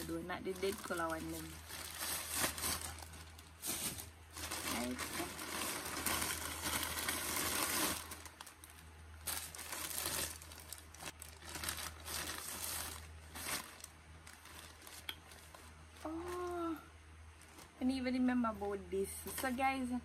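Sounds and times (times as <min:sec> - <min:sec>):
plastic packaging rustling: 0:00.0 - 0:18.0.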